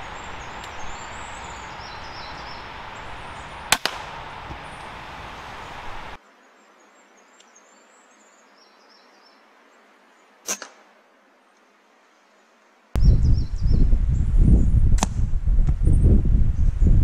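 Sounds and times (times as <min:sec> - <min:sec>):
small birds singing: 0:00.0 - 0:10.4, 0:13.0 - 0:14.9
air rifle shot: 0:03.4 - 0:05.4.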